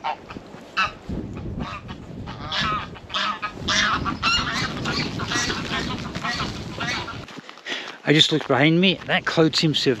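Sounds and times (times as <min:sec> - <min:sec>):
goose honking: 0:00.0 - 0:01.0, 0:01.6 - 0:07.3.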